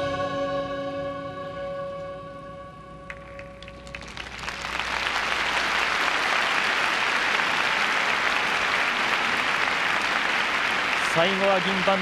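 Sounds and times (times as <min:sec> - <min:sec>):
audience applauding: 0:03.1 - 0:12.0.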